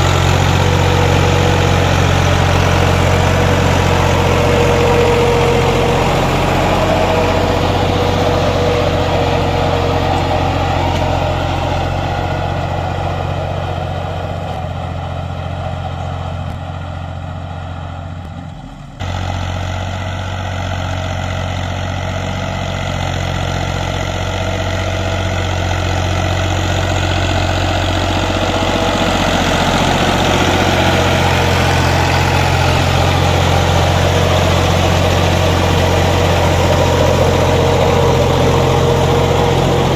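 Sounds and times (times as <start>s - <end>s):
tractor diesel engine running: 0.0s - 39.9s.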